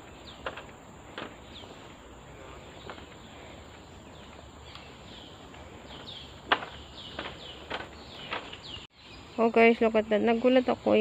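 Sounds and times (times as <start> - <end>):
footsteps on boardwalk: 0.0 - 8.9
bird calling: 0.0 - 11.0
sharp knocks: 6.4 - 8.6.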